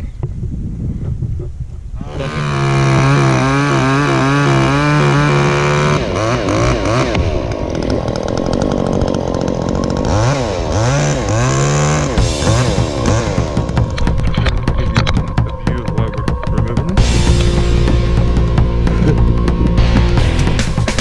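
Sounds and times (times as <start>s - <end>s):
chainsaw revving: 2.1s - 14.8s.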